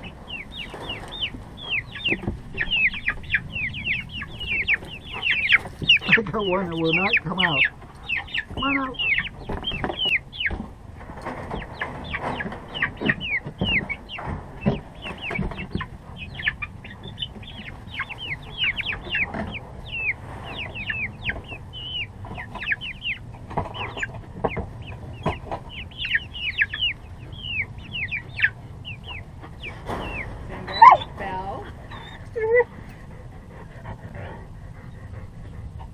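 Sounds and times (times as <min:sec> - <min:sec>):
low knocks and rustling: 0:00.0 - 0:06.4, 0:09.3 - 0:18.0
chicks peeping: 0:00.0 - 0:35.9.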